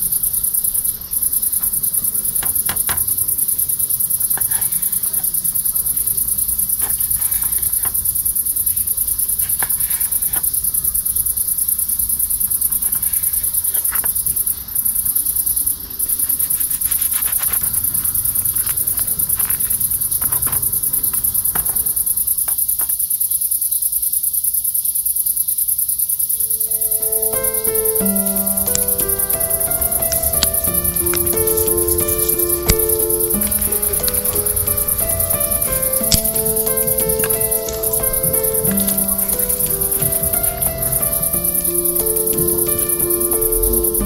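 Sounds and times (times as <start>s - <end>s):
crickets chirring: 0.0s - 44.0s
faint clicks: 26.8s - 41.1s.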